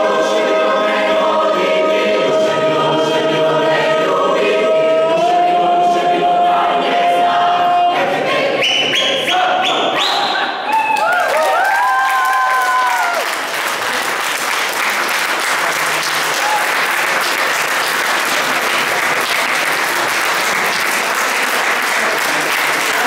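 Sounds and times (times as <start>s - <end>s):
mixed choir singing: 0.0s - 10.0s, 17.2s - 23.0s
audience applause: 10.7s - 23.0s.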